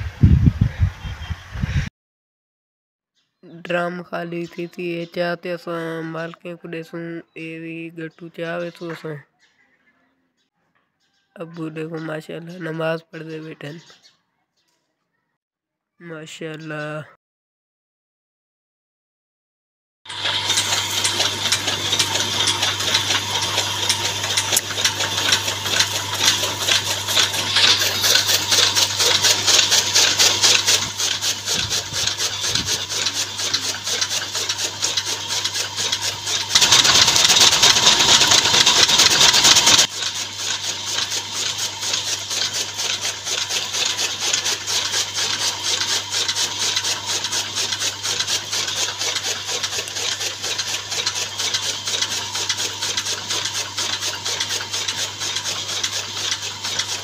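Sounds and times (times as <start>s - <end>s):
chaff cutter motor hum: 20.1s - 57.0s
clatter of chopping fodder: 20.1s - 57.0s.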